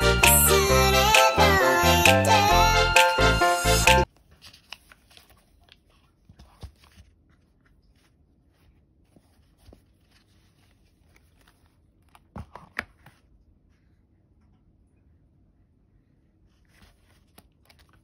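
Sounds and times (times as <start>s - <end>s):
fabric and paper rustling: 4.0s - 13.4s, 16.5s - 18.0s
paper crinkles: 4.1s - 13.2s.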